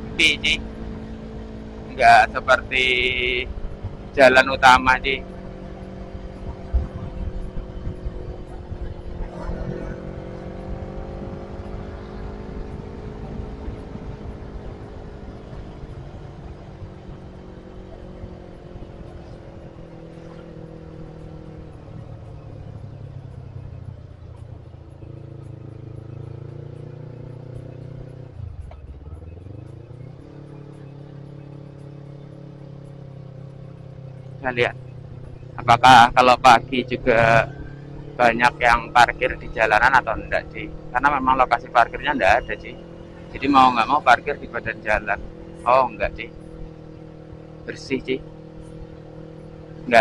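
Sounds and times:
motorcycle engine revving: 0.0s - 50.0s.

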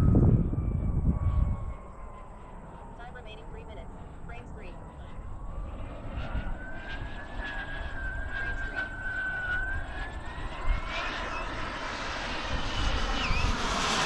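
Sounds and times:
model jet turbine whistling: 5.6s - 14.0s.

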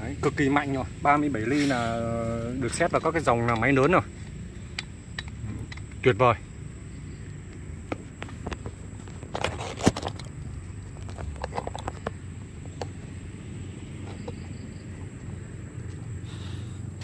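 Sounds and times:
steady low hum: 0.0s - 17.0s
light handling clicks and knocks: 2.6s - 6.4s, 7.2s - 13.1s.

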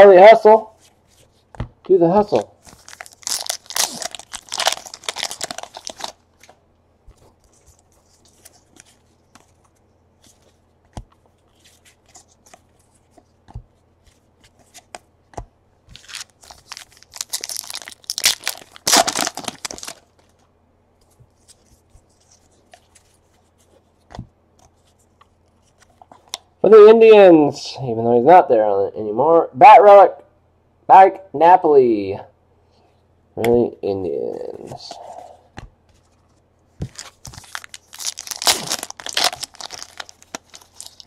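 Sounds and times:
wrappers tearing and crinkling: 2.7s - 6.5s, 16.0s - 20.2s, 36.9s - 41.0s.

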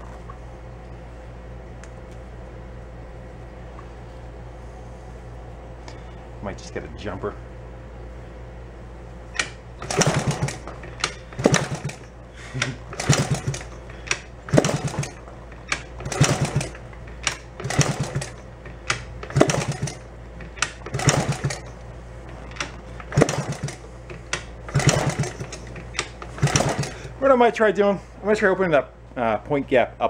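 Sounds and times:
motorbike engine kick-started: 9.4s - 18.4s, 19.3s - 20.0s, 20.6s - 21.7s, 22.4s - 23.8s, 24.7s - 27.2s.

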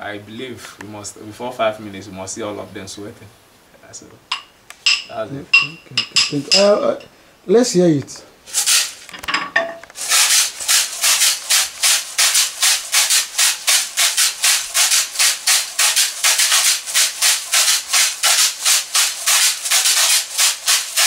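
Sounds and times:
seed shakers rattling: 8.5s - 9.3s, 10.0s - 21.0s.

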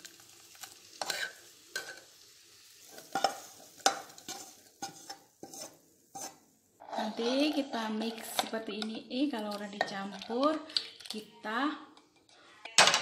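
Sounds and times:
spatula scraping pan: 1.0s - 2.1s, 2.8s - 10.8s.

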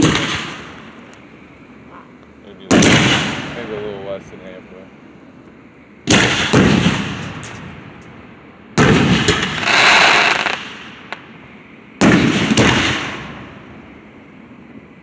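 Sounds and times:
crackling firework fizzing: 0.0s - 1.4s, 2.4s - 4.8s, 6.0s - 13.9s
fireworks booming: 0.0s - 4.8s, 6.0s - 14.2s.

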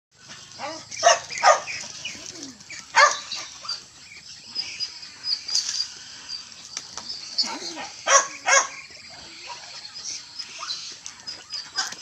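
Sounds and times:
dog barking: 0.6s - 1.8s, 2.9s - 3.3s, 7.8s - 8.8s.

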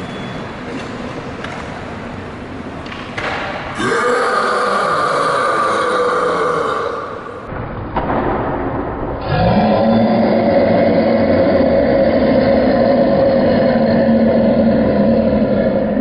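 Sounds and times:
man burping: 9.2s - 16.0s.

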